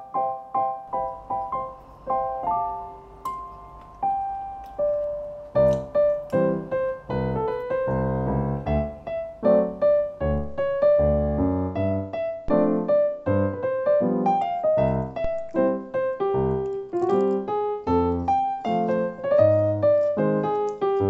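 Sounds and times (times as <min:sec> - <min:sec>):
piano music: 0:00.0 - 0:21.0.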